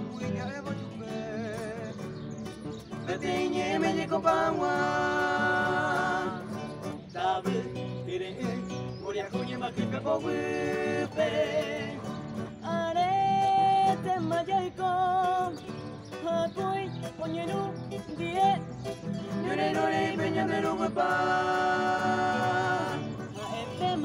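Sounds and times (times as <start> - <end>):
acoustic guitar: 0.0 - 24.0
male trio singing in harmony: 3.0 - 14.4, 18.0 - 24.0.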